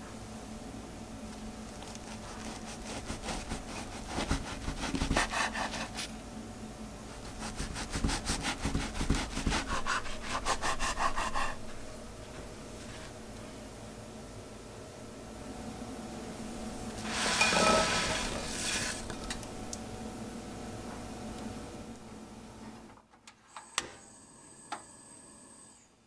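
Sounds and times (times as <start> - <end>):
knife sawing through frozen bread: 1.8 - 6.1, 7.2 - 11.7.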